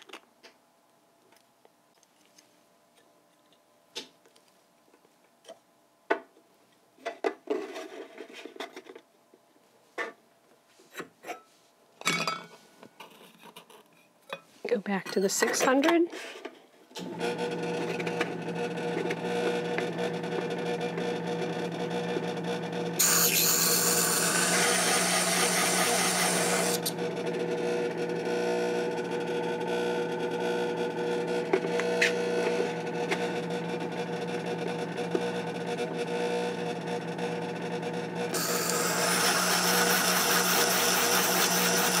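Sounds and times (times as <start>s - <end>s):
metal grinding on spinning disk: 23.0s - 27.0s, 38.3s - 42.0s.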